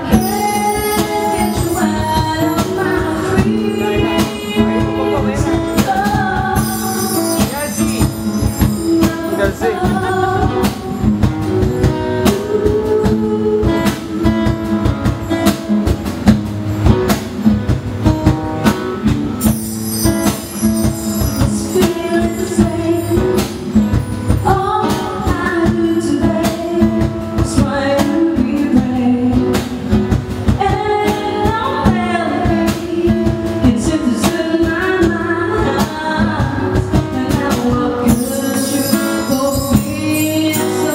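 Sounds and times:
woman singing into a microphone: 0.0 - 15.5, 20.2 - 40.9
acoustic guitar: 0.0 - 40.9
cajon: 0.0 - 40.9
bar chimes shimmer: 6.6 - 9.5, 19.4 - 22.6, 38.2 - 40.9.

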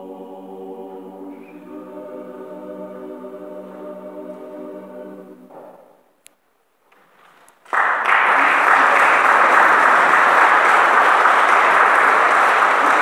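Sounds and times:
audience applause: 7.6 - 13.0.

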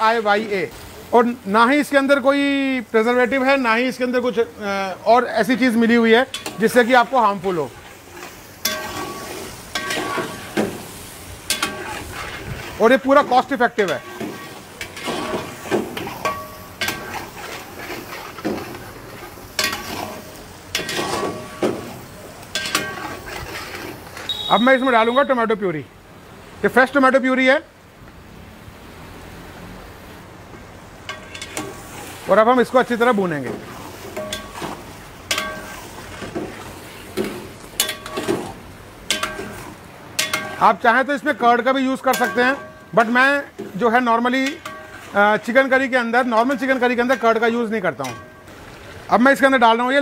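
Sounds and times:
food sizzling: 0.0 - 26.8, 28.8 - 50.0
metal spatula scraping pot: 5.9 - 24.6, 31.1 - 40.8, 41.4 - 48.5
ladle clanking against steel pot: 6.3 - 6.8, 8.6 - 10.8, 19.6 - 23.3, 33.5 - 36.6, 37.2 - 40.7, 42.1 - 42.9, 44.4 - 45.1, 48.0 - 48.5
metal-on-metal knocks: 39.1 - 39.6.

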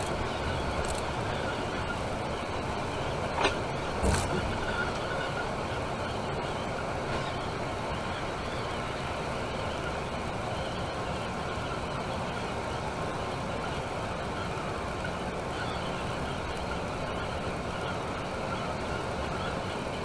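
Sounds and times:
bus road and engine noise: 0.0 - 20.0.

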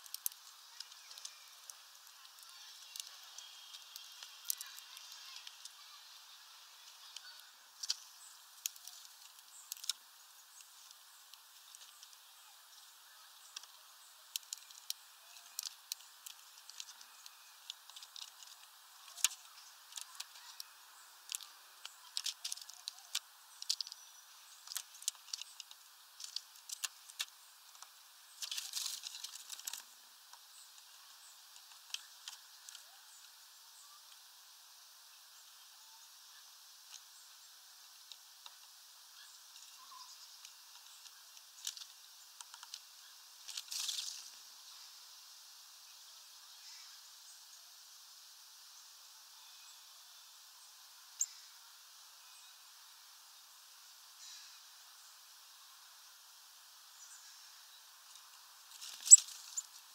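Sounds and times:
birds pecking seeds on plastic tray: 0.0 - 34.2, 37.8 - 44.8, 57.2 - 59.9.

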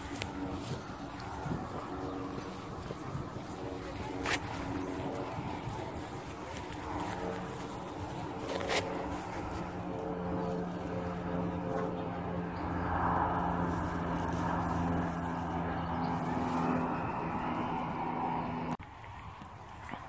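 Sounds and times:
distant engine drone: 0.0 - 20.0.

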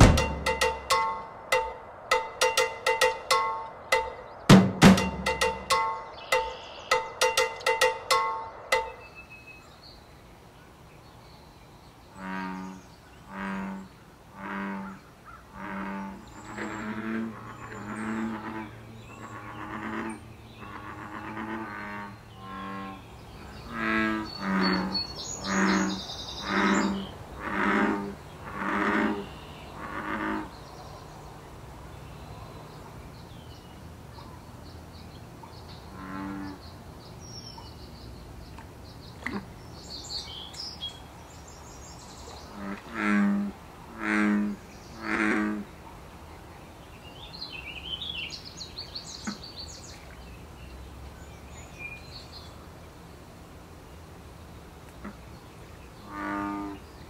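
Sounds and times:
bullfrogs croaking: 0.0 - 9.0, 12.1 - 30.6, 35.9 - 36.7, 42.5 - 45.7, 56.0 - 56.8
small birds chirping faintly: 0.0 - 57.0.

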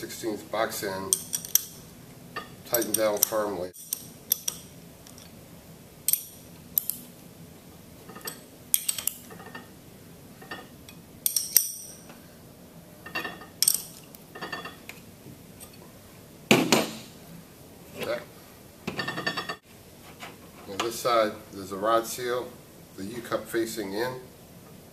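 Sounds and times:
wrench clinking on metal bolts: 1.1 - 1.8, 2.7 - 5.3, 6.1 - 7.0, 8.1 - 9.6, 10.5 - 12.0, 13.1 - 14.8.

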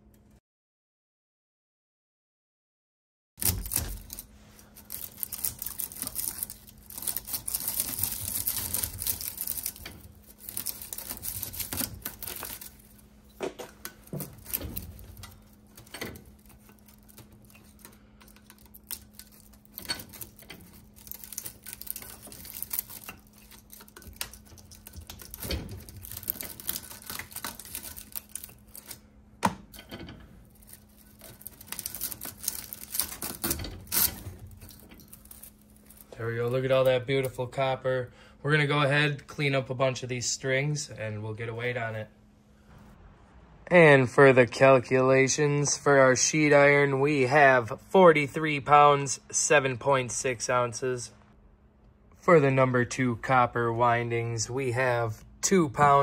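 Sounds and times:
wire scraping and jangling on steel: 3.4 - 29.0, 29.8 - 37.0.

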